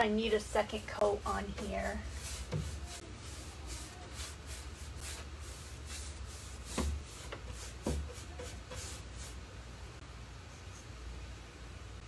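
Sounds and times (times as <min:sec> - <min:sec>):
paintbrush scrubbing: 0:00.6 - 0:09.4
dull thumps: 0:06.6 - 0:08.9.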